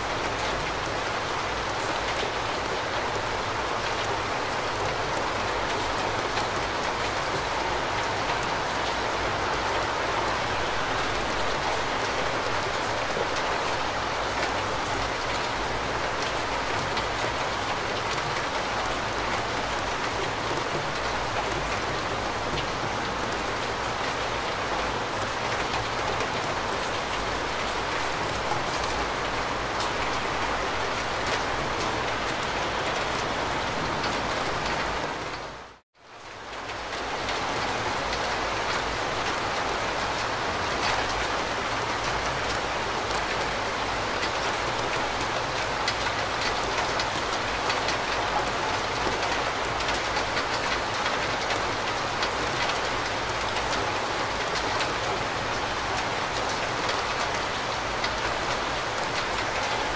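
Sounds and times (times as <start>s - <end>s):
steady rain falling: 0.0s - 59.9s.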